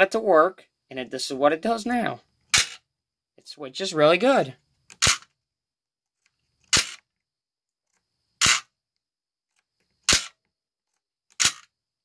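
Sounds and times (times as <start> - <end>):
toy train switch motor snapping: 2.5 - 2.8, 4.9 - 5.3, 6.6 - 7.0, 8.4 - 8.7, 10.0 - 10.4, 11.3 - 11.7.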